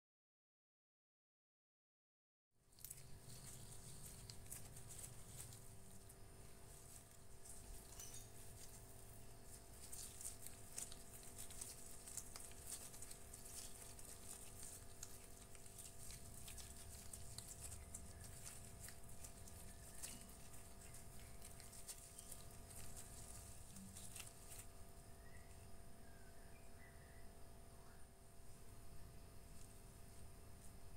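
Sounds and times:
dough on wooden tabletop: 2.6s - 30.9s
faint steady hum: 2.6s - 30.9s
gloved hands ticking and crinkling: 2.7s - 25.5s.

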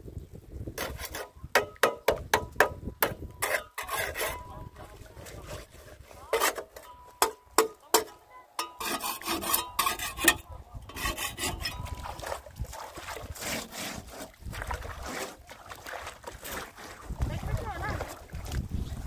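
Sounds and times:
trowel scraping mortar on metal: 0.8s - 1.8s, 3.0s - 12.0s, 13.2s - 14.4s.

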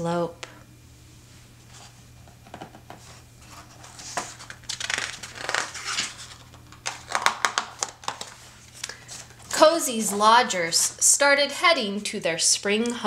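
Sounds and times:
book page turning: 3.0s - 9.6s
paper crackles: 3.1s - 10.2s.

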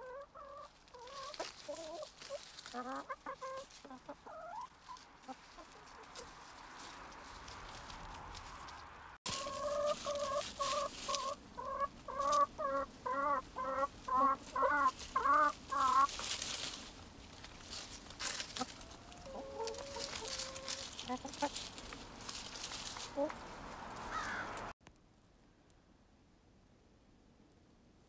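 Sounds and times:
hen clucking: 0.0s - 6.6s, 9.3s - 24.7s
hens scratching through leaves: 0.0s - 24.8s.

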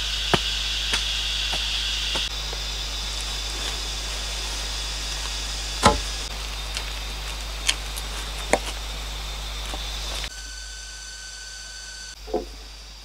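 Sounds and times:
steady high hiss: 0.0s - 13.0s
bamboo pole knocking: 5.8s - 6.2s.

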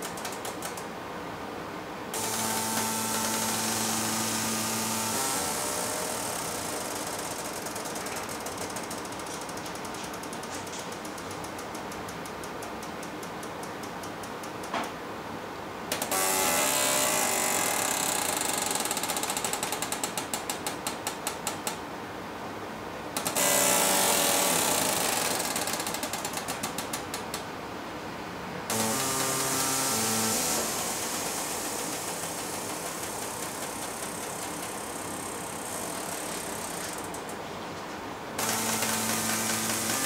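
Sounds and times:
steady whine: 2.1s - 8.8s, 28.7s - 37.7s
robot arm rapid clicking: 2.2s - 9.3s, 23.2s - 27.2s, 28.7s - 37.2s, 38.4s - 40.0s
air hissing: 28.7s - 37.1s.

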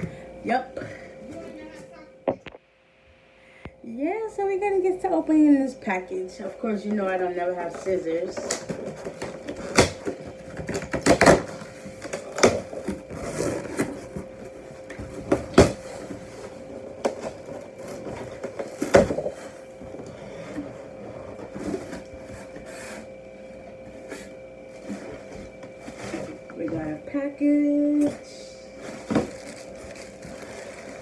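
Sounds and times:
cardboard flaps rustling: 28.8s - 31.0s
packing tape ripping: 29.0s - 31.0s.

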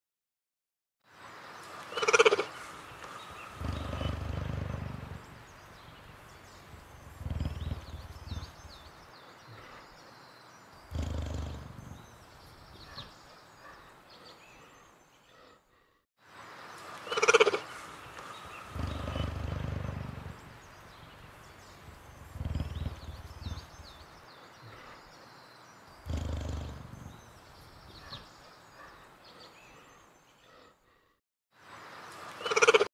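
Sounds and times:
cheetah low rumbling growls: 3.0s - 10.0s, 10.8s - 14.6s, 18.2s - 25.1s, 26.0s - 29.7s.

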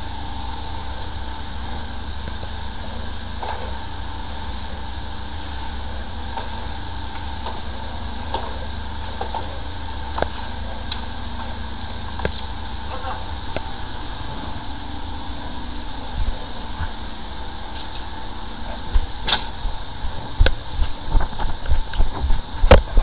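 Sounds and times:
sewer jetter rumbling and hissing: 0.0s - 23.0s.

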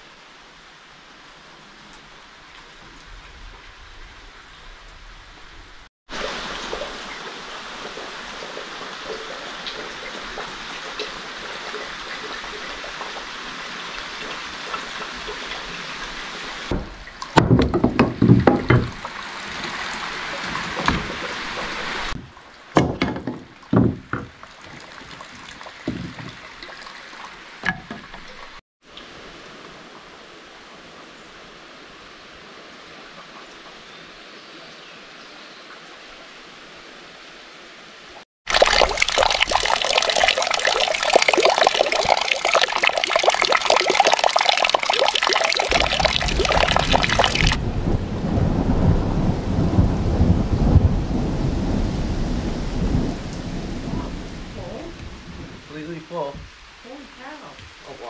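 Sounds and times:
running water rushing: 0.0s - 58.0s
irregular knocks and clattering: 16.7s - 19.2s, 20.4s - 25.2s, 25.8s - 26.7s, 27.6s - 28.6s.

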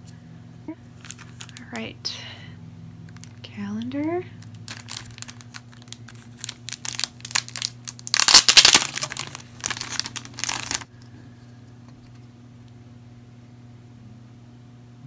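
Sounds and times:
plastic packaging crinkling: 0.9s - 1.9s, 3.1s - 3.6s, 4.4s - 10.9s.

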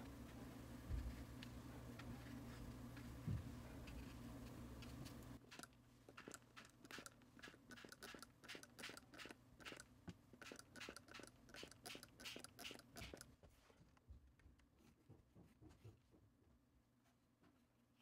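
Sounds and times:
spray bottle squirts: 5.5s - 9.8s, 10.4s - 13.2s.

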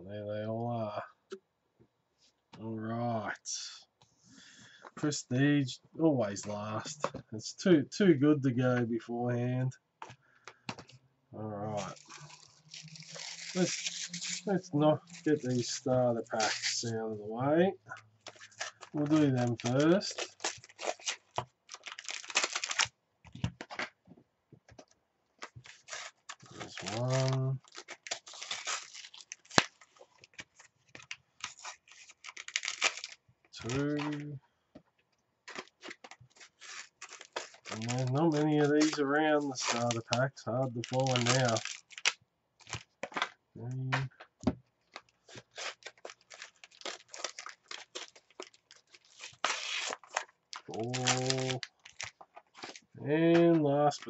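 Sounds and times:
crinkly packet rustle: 11.7s - 17.0s, 17.9s - 22.9s, 25.4s - 34.3s, 35.4s - 43.3s, 44.8s - 53.0s.

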